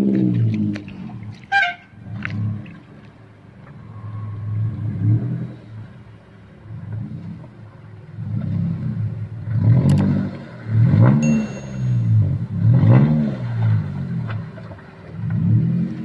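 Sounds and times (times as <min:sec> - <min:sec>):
truck engine revving: 0:08.2 - 0:14.6.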